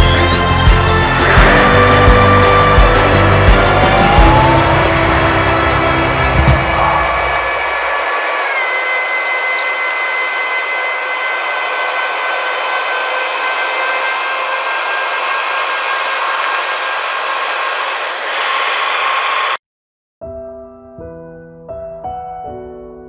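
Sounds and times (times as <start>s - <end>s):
engine whining tones: 0.0s - 19.6s
airplane cabin air rush: 2.6s - 19.6s
soft piano music: 20.2s - 23.0s.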